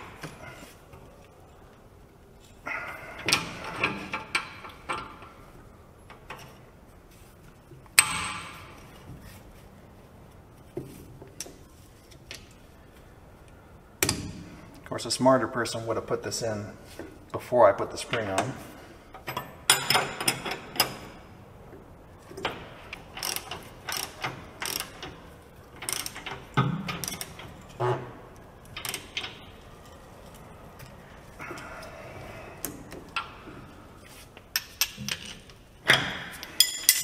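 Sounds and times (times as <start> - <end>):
wrench clicking on bolts: 22.4 - 27.8
wrench rasping: 23.1 - 25.2, 25.8 - 27.6.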